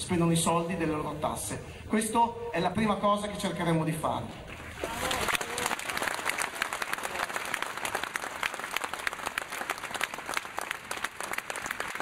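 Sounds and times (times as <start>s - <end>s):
crowd clapping: 4.5s - 12.0s.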